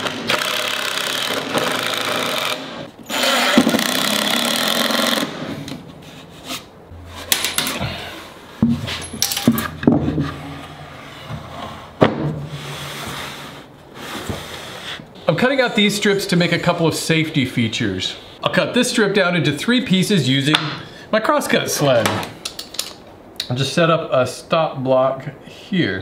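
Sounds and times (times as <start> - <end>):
cordless drill driving screws: 0.0 - 5.6.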